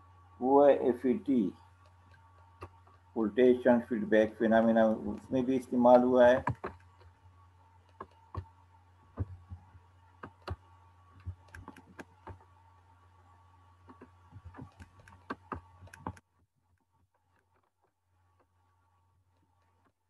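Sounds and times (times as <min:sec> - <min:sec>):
low electrical hum: 0:00.0 - 0:20.0
computer mouse clicking: 0:06.4 - 0:07.2, 0:07.8 - 0:08.5, 0:10.2 - 0:10.6, 0:11.2 - 0:12.5, 0:13.8 - 0:16.3.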